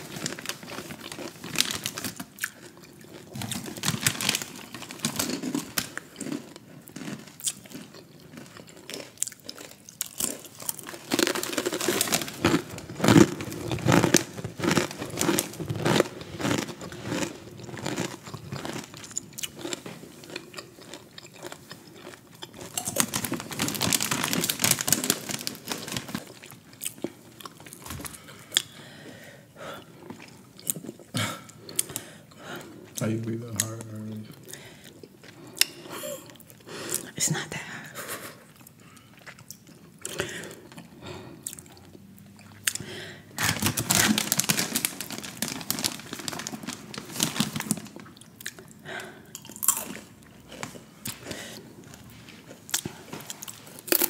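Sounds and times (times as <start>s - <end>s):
chip bag rustling: 0.0s - 28.2s, 43.3s - 48.7s, 49.4s - 54.0s
chips crunching while chewed: 0.0s - 28.8s, 29.9s - 32.4s, 38.6s - 54.0s.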